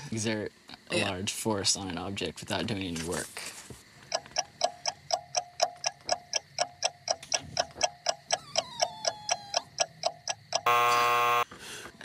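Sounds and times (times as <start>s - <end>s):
clock ticking: 4.1s - 10.9s.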